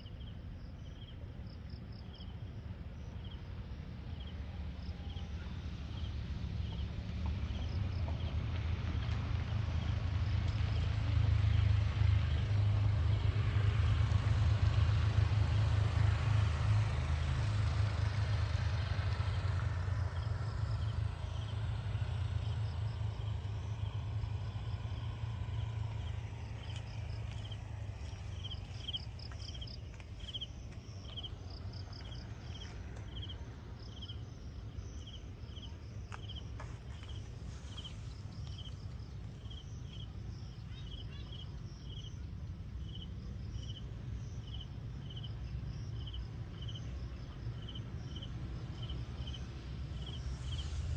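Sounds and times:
low outdoor rumble: 0.0s - 50.9s
car driving past: 4.2s - 41.1s, 44.3s - 50.9s
insect chirping: 20.0s - 46.8s, 47.5s - 50.9s.

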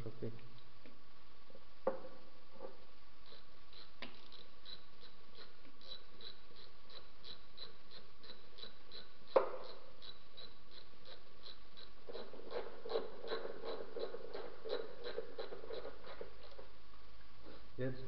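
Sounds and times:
ratchet wrench clicking: 3.2s - 12.2s.

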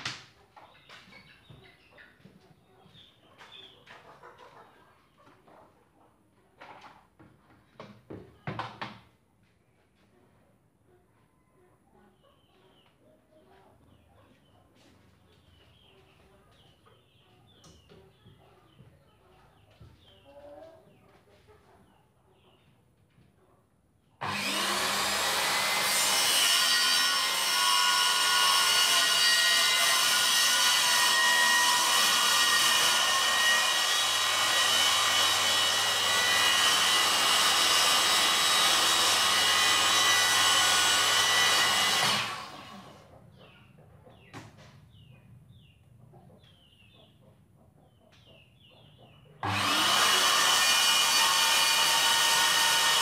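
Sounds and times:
circular saw cutting wood: 24.2s - 43.0s, 49.4s - 53.0s.

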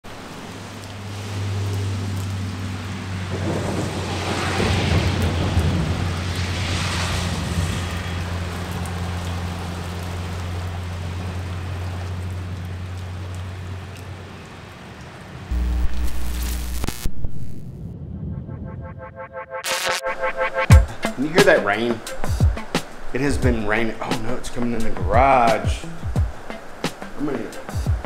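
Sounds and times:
heavy rain on pavement: 0.0s - 17.5s, 20.9s - 28.0s
steady low hum: 15.5s - 19.1s
rumbling noise: 15.5s - 21.3s.

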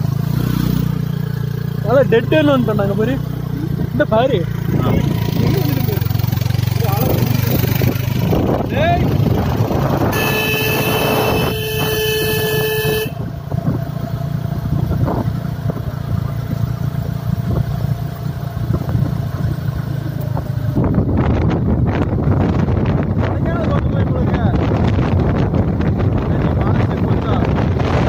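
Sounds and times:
motorcycle engine hum: 0.0s - 28.0s
wind noise: 6.8s - 18.0s, 18.6s - 28.0s
vehicle horn blast: 10.0s - 13.3s.

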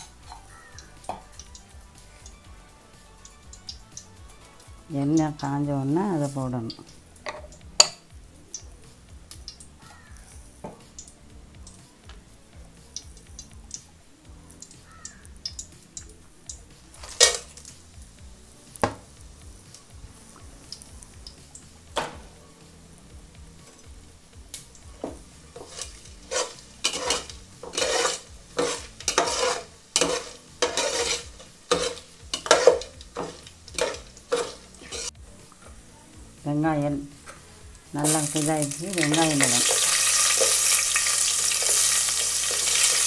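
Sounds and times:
spices frying in hot oil: 0.0s - 43.0s
metal spatula scraping a pot: 17.0s - 17.6s, 25.5s - 35.2s.

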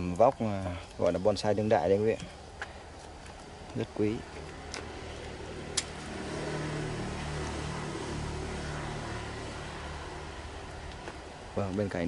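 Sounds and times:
vehicle engine passing: 3.5s - 12.0s.

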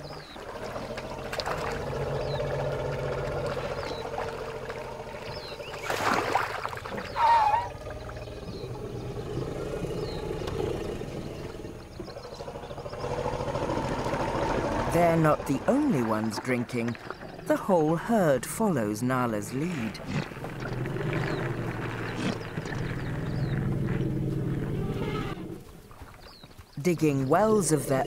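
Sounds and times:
water trickling and sloshing: 0.0s - 9.2s, 13.8s - 24.7s, 25.3s - 28.0s
elephant calls: 7.0s - 15.5s, 19.8s - 25.7s.

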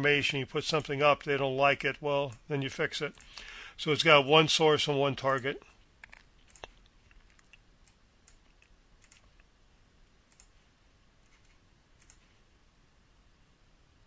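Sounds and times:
computer mouse clicks: 6.0s - 9.5s, 10.3s - 10.6s, 11.2s - 12.3s.

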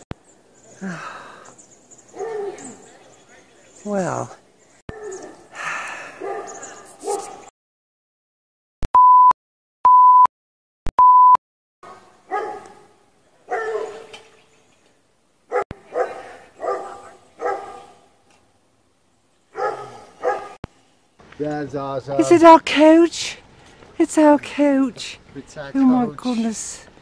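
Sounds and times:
dog barking: 2.1s - 2.8s, 4.9s - 5.4s, 6.2s - 7.5s, 11.9s - 14.1s, 15.5s - 18.1s, 19.5s - 20.6s.

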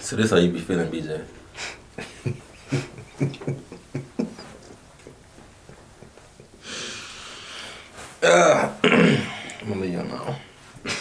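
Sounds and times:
men laughing: 2.0s - 6.6s.

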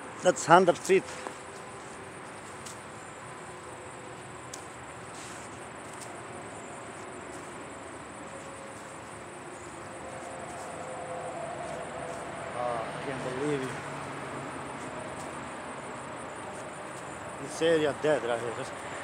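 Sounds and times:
outdoor hiss: 0.2s - 10.8s
insect trilling: 0.2s - 19.0s.

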